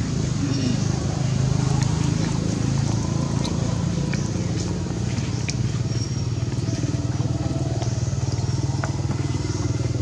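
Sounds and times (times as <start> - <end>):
small engine idling: 0.0 - 10.0.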